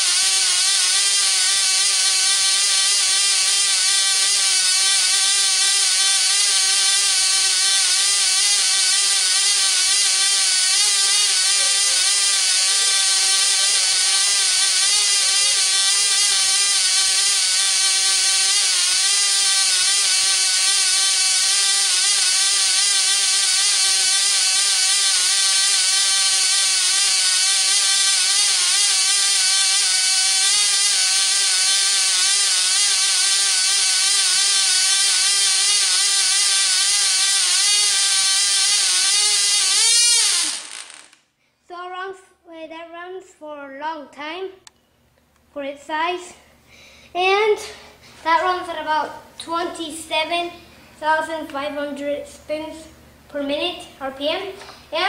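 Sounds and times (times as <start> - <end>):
model engine high-pitched whine: 0.0 - 41.2.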